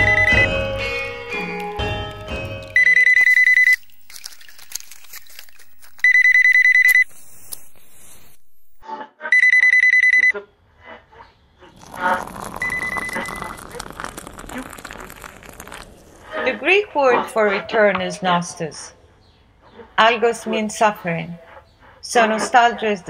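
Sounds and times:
electronic ringer trilling: 0.0 - 0.7, 2.8 - 3.9, 6.0 - 7.1, 8.4 - 10.3.

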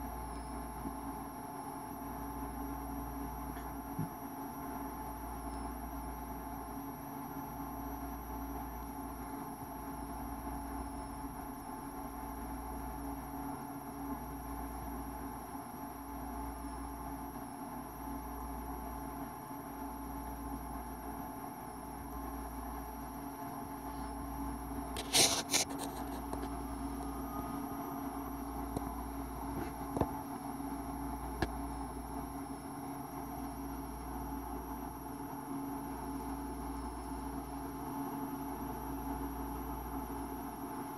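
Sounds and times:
steady hum and whine: 0.0 - 40.9.

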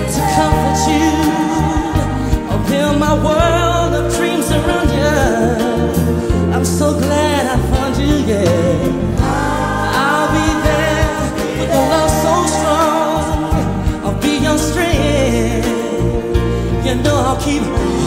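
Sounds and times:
instrumental accompaniment with bass: 0.0 - 18.0
person singing with vibrato: 0.0 - 18.0.

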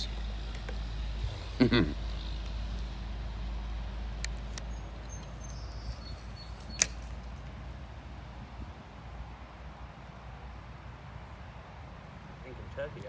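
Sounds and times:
sharp click: 6.6 - 7.3.

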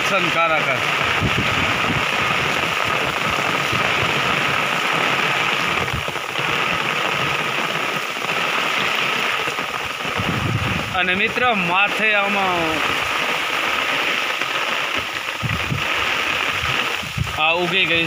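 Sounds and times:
steady rain hissing: 0.0 - 18.0
wind rumbling on microphone: 0.6 - 7.4, 8.7 - 11.6, 14.9 - 18.0.

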